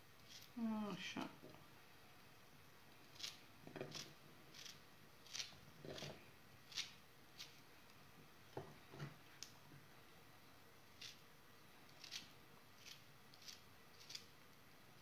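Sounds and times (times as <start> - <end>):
knife cutting zucchini: 3.1 - 7.6, 12.0 - 14.3.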